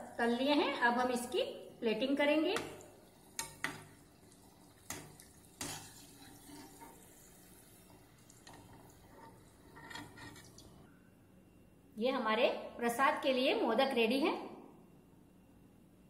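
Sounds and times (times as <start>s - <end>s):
faint sizzle of frying: 0.3s - 10.9s.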